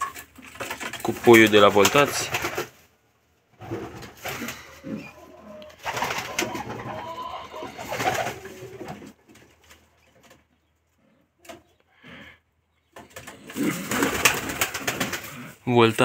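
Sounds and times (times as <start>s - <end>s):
pigeons cooing: 3.6s - 9.2s, 13.0s - 15.6s.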